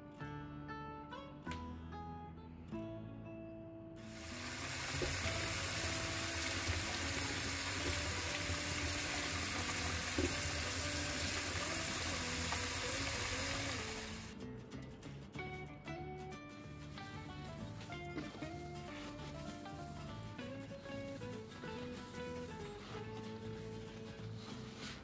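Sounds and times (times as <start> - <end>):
tap water splashing: 4.1 - 14.3
hand rubbing melon rind: 4.1 - 14.4, 16.9 - 25.0.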